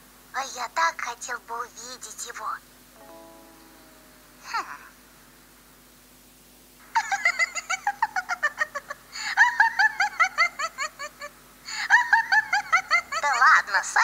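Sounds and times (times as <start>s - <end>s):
high-pitched cartoon giggling: 7.0s - 11.3s, 11.9s - 13.4s.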